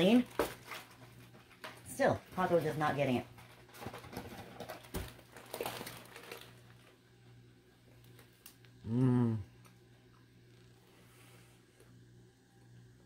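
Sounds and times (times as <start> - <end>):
wrapper crinkling: 3.3 - 7.0
woman humming mmm: 8.8 - 9.6.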